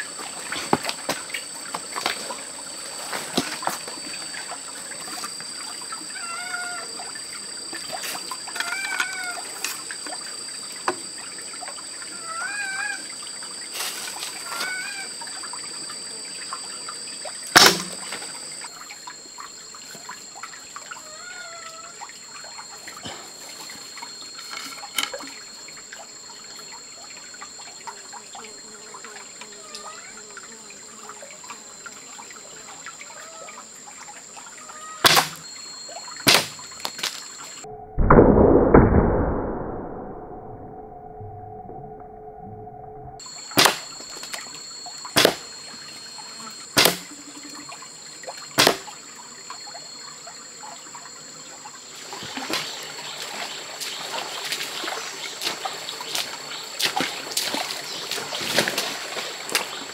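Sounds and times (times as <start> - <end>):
short wavering call: 0.0 - 30.2, 34.5 - 37.8, 43.2 - 51.1
trickling stream: 0.0 - 37.7, 43.2 - 59.9
high insect drone: 0.0 - 38.0, 43.1 - 59.9
crossbow shot snap: 17.6 - 18.0, 35.0 - 35.4, 36.3 - 36.6, 43.6 - 43.8, 45.2 - 45.4, 46.8 - 47.1, 48.6 - 48.9.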